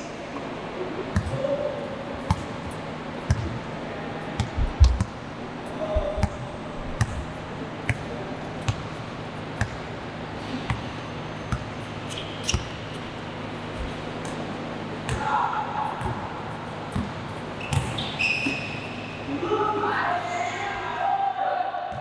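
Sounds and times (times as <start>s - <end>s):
basketball bouncing on court: 1.1s - 1.4s, 2.3s - 3.6s, 4.3s - 5.3s, 5.9s - 9.9s, 11.5s - 11.8s, 15.0s - 15.4s, 16.9s - 18.2s.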